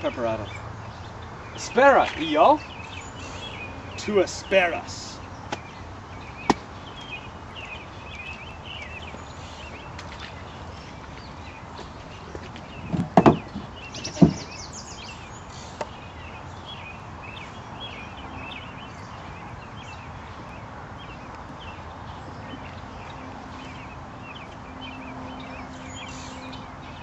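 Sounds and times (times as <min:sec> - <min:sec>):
birds chirping: 0:00.0 - 0:27.0
dull thumps: 0:12.8 - 0:14.5.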